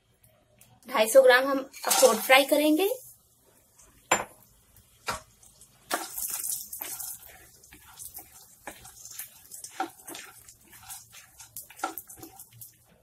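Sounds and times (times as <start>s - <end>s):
nuts sizzling in oil: 1.6s - 3.4s, 4.4s - 13.0s
spatula scraping pan: 5.9s - 12.8s.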